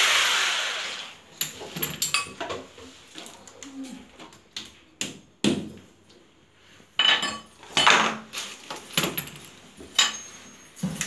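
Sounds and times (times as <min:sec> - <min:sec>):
metal tools clinking and knocking: 0:07.0 - 0:11.0.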